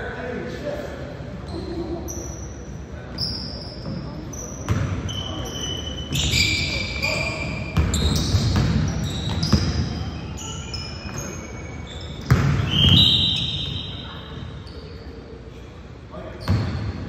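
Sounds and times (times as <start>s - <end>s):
sneakers squeaking on court: 1.4s - 15.2s, 16.3s - 17.0s
basketball dribbling thuds: 7.8s - 9.9s, 12.2s - 13.0s.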